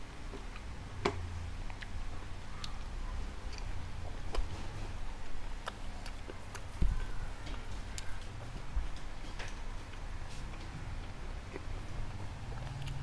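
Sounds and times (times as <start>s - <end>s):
person chewing: 3.4s - 13.0s.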